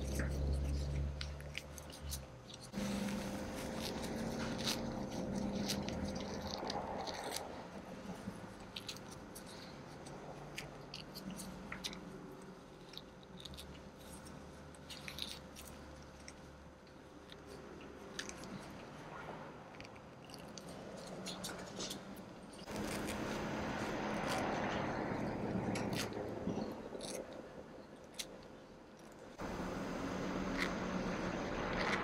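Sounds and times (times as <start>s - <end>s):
crackles and rustles of hair pulled: 0.0s - 32.0s.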